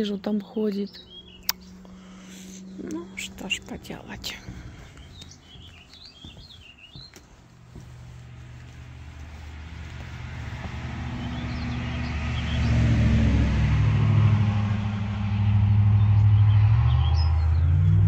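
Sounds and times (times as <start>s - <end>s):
motor vehicle engine running: 0.0s - 18.0s.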